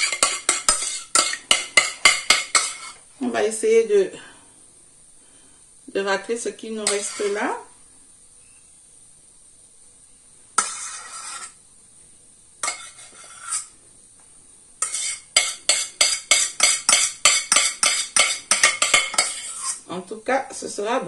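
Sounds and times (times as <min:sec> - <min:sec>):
spoon scraping metal saucepan: 0:00.0 - 0:03.0, 0:06.8 - 0:07.6, 0:10.6 - 0:11.6, 0:12.6 - 0:13.7, 0:14.8 - 0:19.8.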